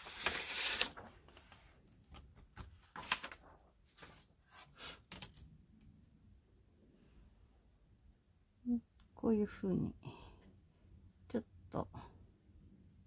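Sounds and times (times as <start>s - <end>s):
paper rustling: 0.0s - 5.5s.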